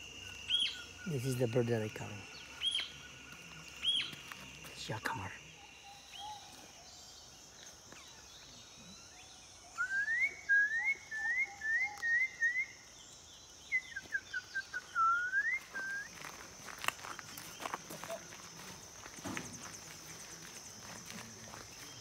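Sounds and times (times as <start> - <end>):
bird whistled call: 0.5 - 0.9, 3.8 - 4.1, 9.7 - 12.8, 13.7 - 16.2.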